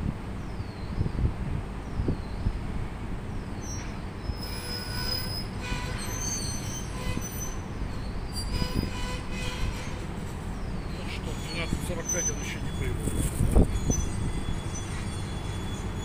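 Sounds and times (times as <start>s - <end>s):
low train rumble: 0.0s - 16.0s
train wheels squealing: 3.6s - 16.0s.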